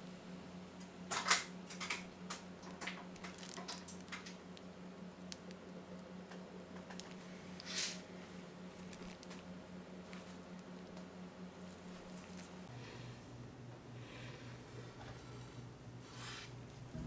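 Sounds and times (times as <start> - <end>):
steady low hum: 0.0 - 17.0
piping bag crinkling: 2.2 - 5.6, 8.6 - 12.7.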